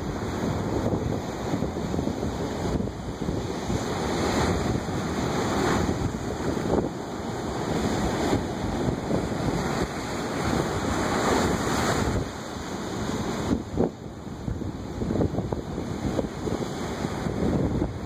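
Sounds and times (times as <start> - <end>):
surf breaking over rocks: 0.0 - 13.8
wind buffeting microphone: 0.0 - 18.0.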